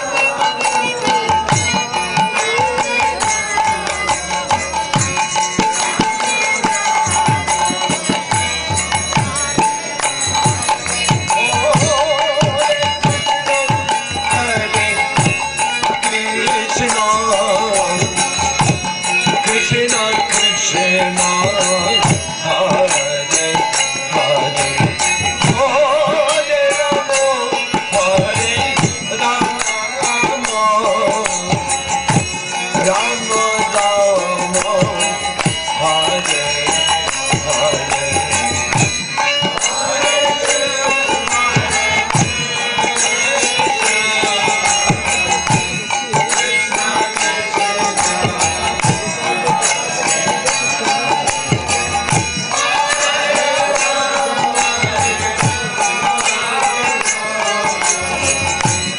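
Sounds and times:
drum beating fast rhythm: 0.0 - 58.9
hand cymbals ringing: 0.0 - 58.9
harmonium: 0.0 - 58.9
group chanting: 52.5 - 58.2.

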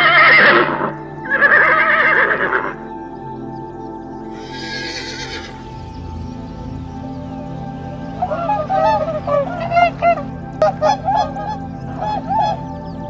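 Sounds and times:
background music: 0.0 - 13.0
horse whinnying: 4.3 - 5.7.

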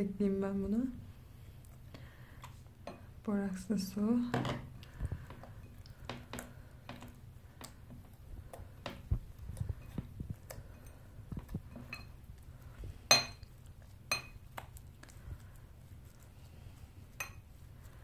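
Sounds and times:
slime squelching by hand: 3.9 - 18.0.

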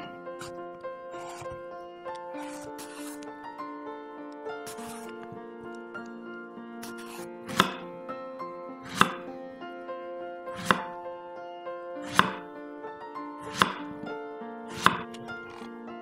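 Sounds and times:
knife cutting on wooden board: 0.0 - 1.6, 2.4 - 3.3, 4.6 - 5.4, 6.8 - 7.8, 8.8 - 9.3, 10.6 - 10.9, 12.1 - 12.4, 13.4 - 14.0, 14.7 - 15.7
background music: 0.0 - 16.0.

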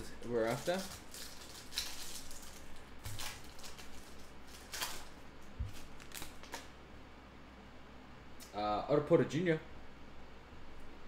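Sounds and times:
foil wrapper crinkling: 0.0 - 6.7.

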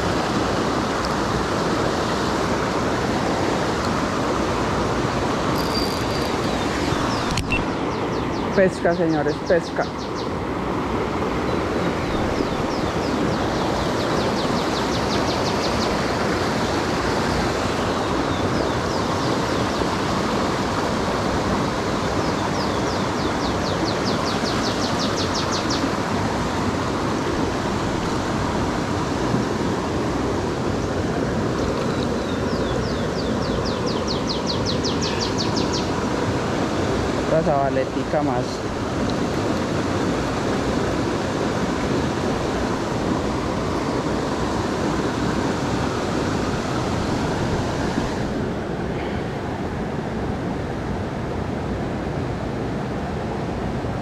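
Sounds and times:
stream rushing: 0.0 - 54.0
fishing reel ticking: 5.5 - 6.6.

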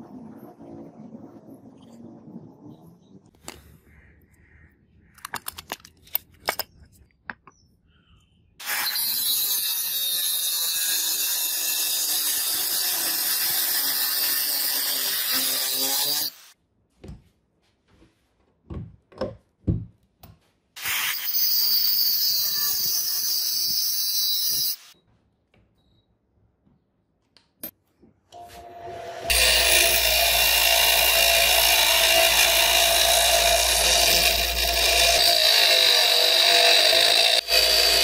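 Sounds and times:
angle grinder cutting steel: 8.6 - 16.5, 20.8 - 25.0, 28.4 - 38.0.

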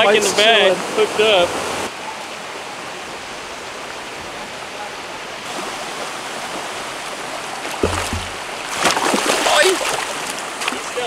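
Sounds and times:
shallow creek rushing: 0.0 - 11.0
dull bumps: 7.7 - 9.2
fish splashing at surface: 7.7 - 10.8.

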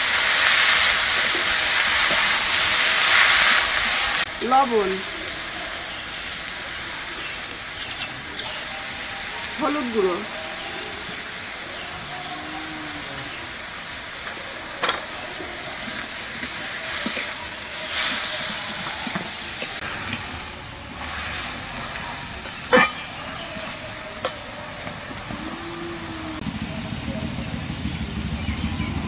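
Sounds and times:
vegetables sizzling in oil: 0.0 - 26.7
metal spatula stirring: 15.8 - 20.4, 21.0 - 24.4.

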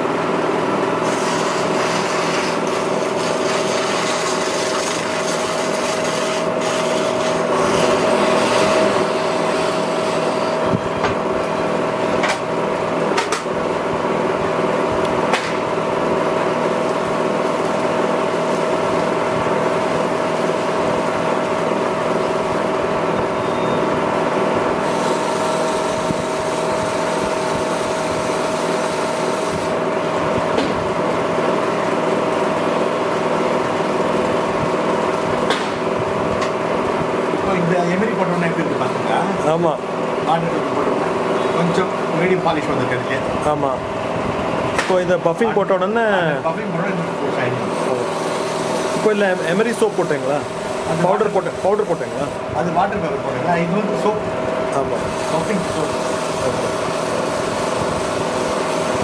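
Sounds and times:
electric motor humming: 0.8 - 59.0
pen part rubbing on buffing wheel: 1.0 - 8.7.

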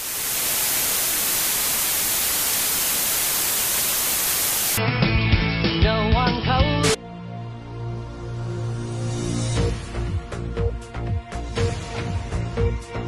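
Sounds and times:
tv static hiss: 0.0 - 4.8
music: 4.8 - 13.0.

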